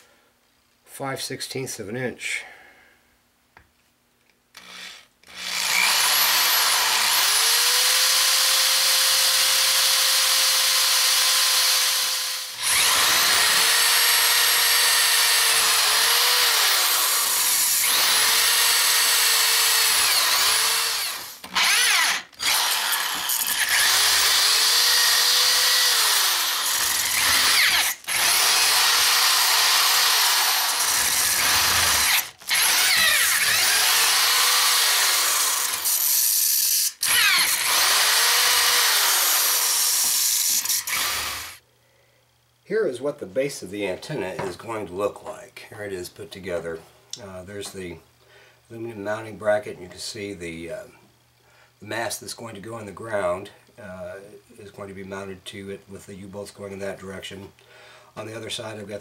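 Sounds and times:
power drill boring through metal: 0:04.6 - 0:41.6.

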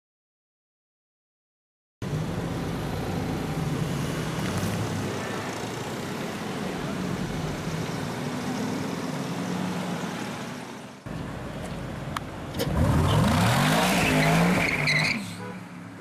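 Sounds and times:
car engine revving and accelerating: 0:12.6 - 0:15.1.

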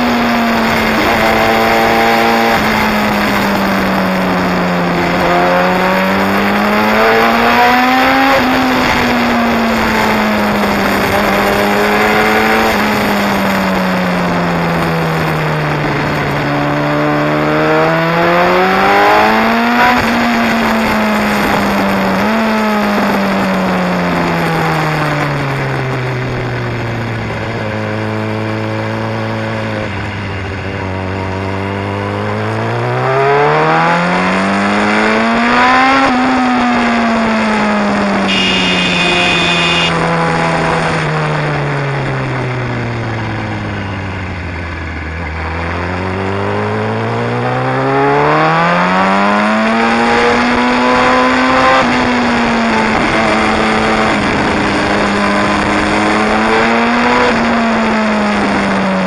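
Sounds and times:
motorcycle engine and exhaust: 0:00.0 - 0:59.0.

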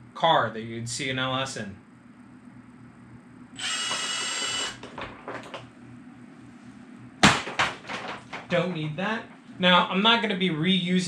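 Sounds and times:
ratcheting tool whirring: 0:03.6 - 0:05.0.

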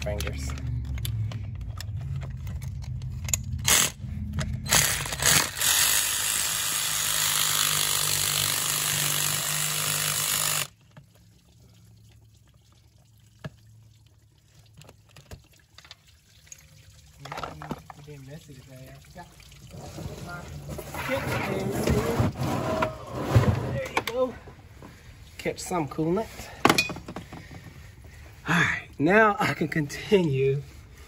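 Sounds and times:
clicks of parts handled: 0:00.0 - 0:05.2
low hum: 0:00.0 - 0:06.5
coolant pouring out: 0:09.7 - 0:24.0.

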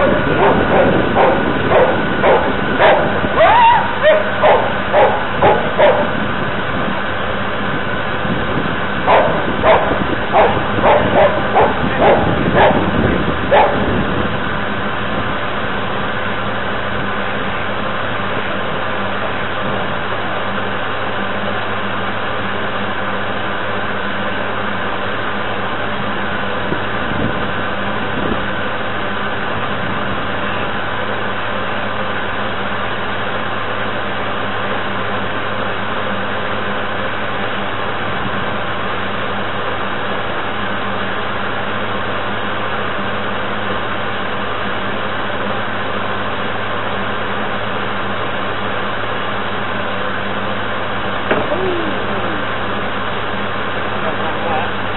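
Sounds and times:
dog barking: 0:00.0 - 0:06.2, 0:09.1 - 0:13.9
model boat motor humming: 0:00.0 - 0:23.2, 0:49.5 - 0:54.9.

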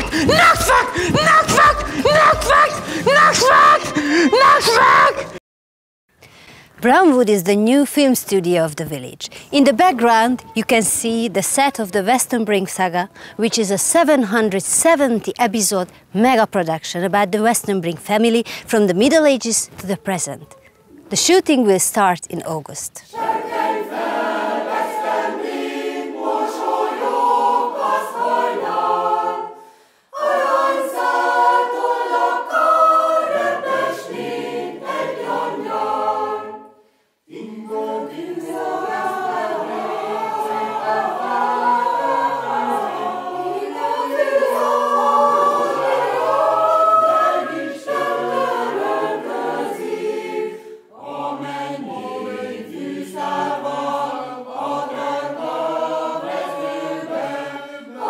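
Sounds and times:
choir singing unaccompanied: 0:00.0 - 0:05.4, 0:23.1 - 0:58.0.

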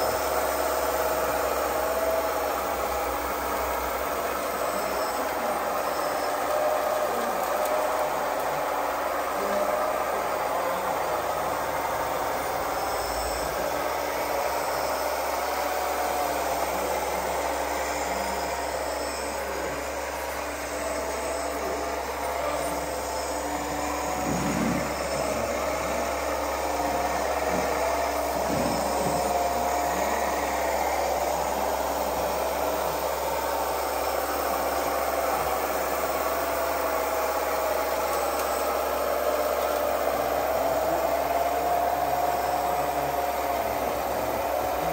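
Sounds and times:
small electric motors whining: 0:00.0 - 0:44.9.

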